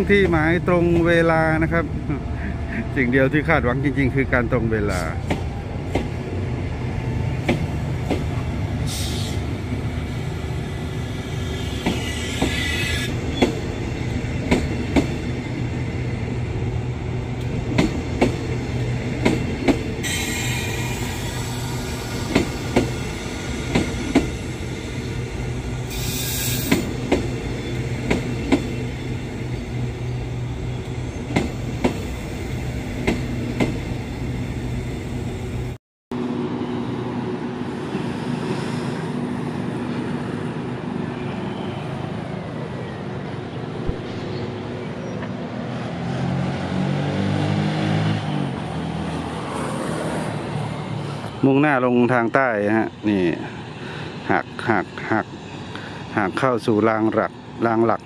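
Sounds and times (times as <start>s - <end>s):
train wheels clicking over rail joints: 19.2s - 20.3s.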